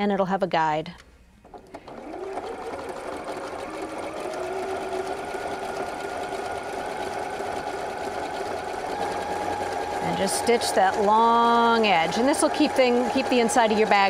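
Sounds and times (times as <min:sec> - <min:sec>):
sewing machine stitching: 0:01.4 - 0:14.0.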